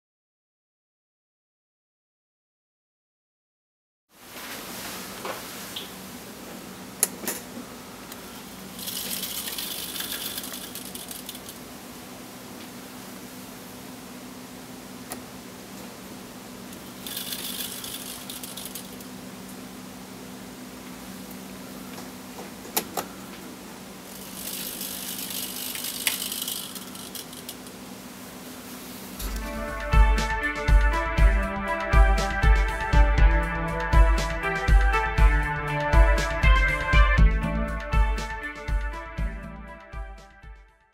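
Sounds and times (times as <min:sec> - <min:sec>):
steady low hum: 0:06.0 - 0:39.6
servo whirring: 0:16.8 - 0:19.1, 0:24.1 - 0:27.7.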